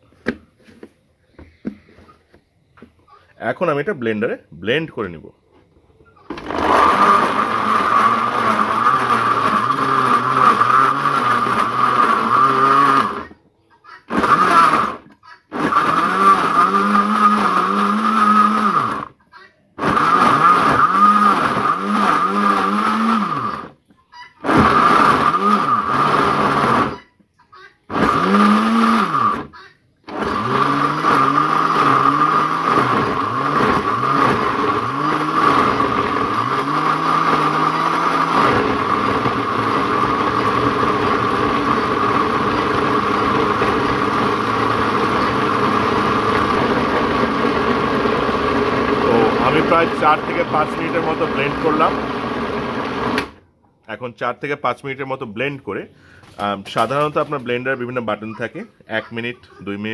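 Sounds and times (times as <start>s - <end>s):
blender motor whine: 6.3s - 13.4s, 14.1s - 19.2s, 19.8s - 23.8s, 24.4s - 27.0s, 27.9s - 29.5s, 30.1s - 53.4s.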